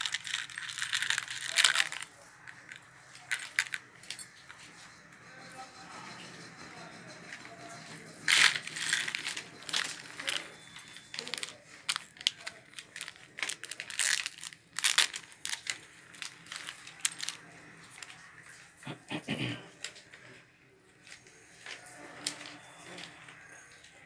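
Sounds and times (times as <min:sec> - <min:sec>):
packaging wrapper crinkling: 0:00.0 - 0:03.9, 0:08.3 - 0:18.3
chain clinking: 0:00.0 - 0:05.0.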